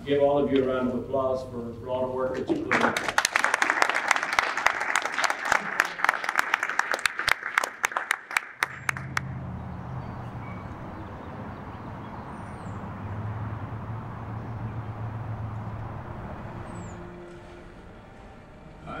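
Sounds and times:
people clapping: 2.3s - 9.4s
steady low hum: 8.7s - 19.0s.

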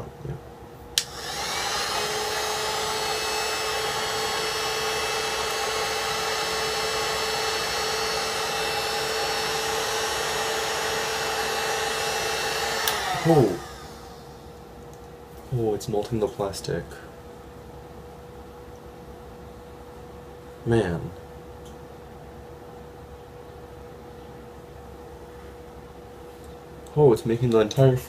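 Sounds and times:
heat gun fan whining: 0.8s - 28.0s
heat gun switch click: 1.0s - 1.2s, 12.8s - 13.1s.

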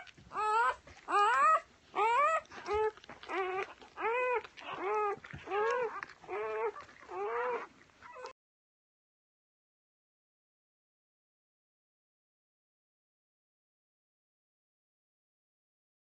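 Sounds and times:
puppy whining squeals: 0.0s - 8.4s.

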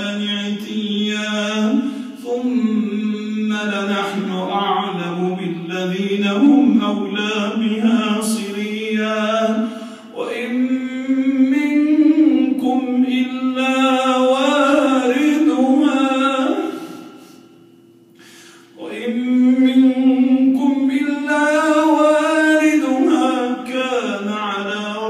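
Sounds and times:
man chanting melodic recitation: 0.0s - 16.8s, 18.8s - 25.0s
man breathing: 9.7s - 10.2s, 16.7s - 18.8s.

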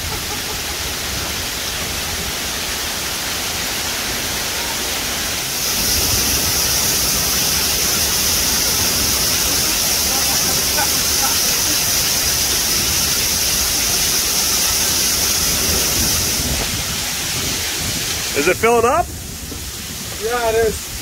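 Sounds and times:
torrential rain pouring: 0.0s - 21.0s.

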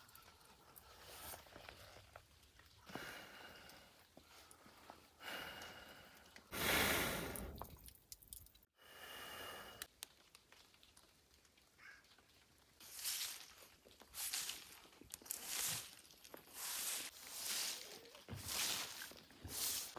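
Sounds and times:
long rushing breath blown: 6.6s - 7.6s.

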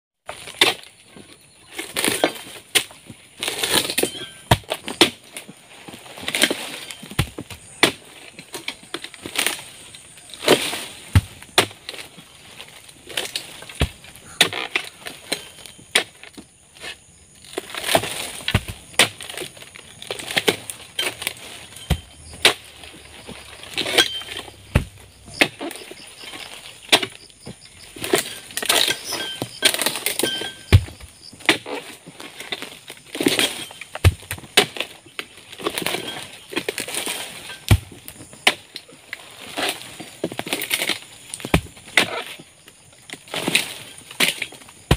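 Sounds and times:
palm fronds rustling: 0.3s - 44.9s
chisel chopping impacts: 20.3s - 25.8s.

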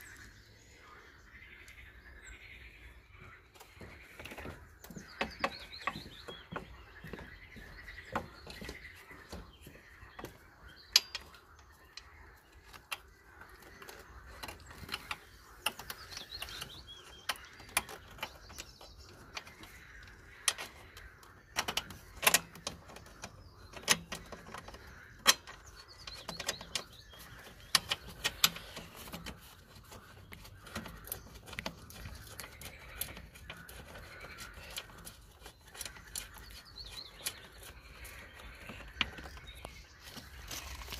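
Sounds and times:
birds calling: 0.0s - 40.9s
metal and plastic clicks: 21.5s - 29.4s.

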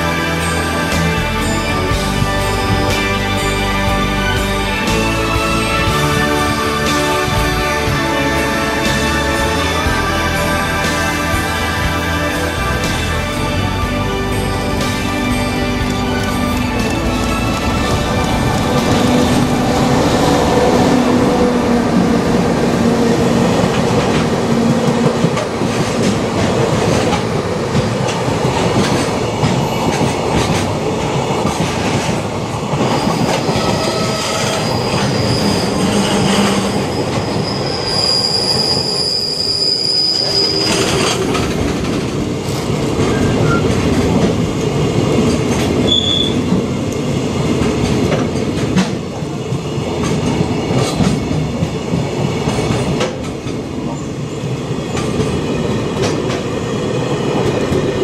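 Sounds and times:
electric locomotive humming: 0.0s - 58.0s
train wheels clattering over rail joints: 23.6s - 36.6s
high wheel squeal: 32.8s - 41.6s, 43.0s - 43.9s, 45.8s - 46.5s.

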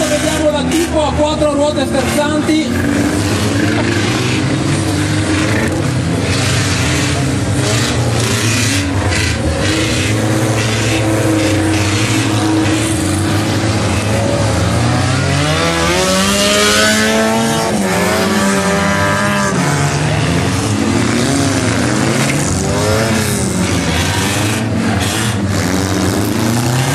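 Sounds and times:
car engines revving hard: 0.0s - 26.9s.

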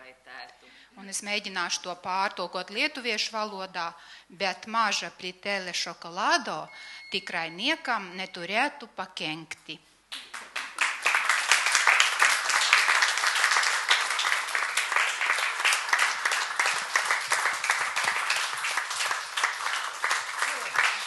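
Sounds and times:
audience applauding: 10.1s - 21.0s.

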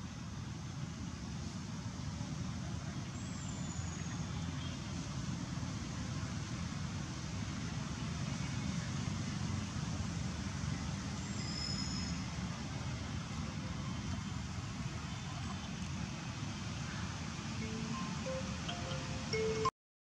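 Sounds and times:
faint hiss: 0.0s - 19.7s
faint high whistle: 11.3s - 12.3s.

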